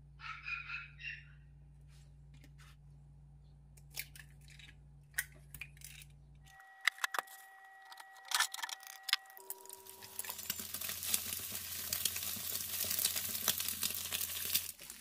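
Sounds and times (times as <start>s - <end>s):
eggs frying in hot oil: 9.4s - 15.0s.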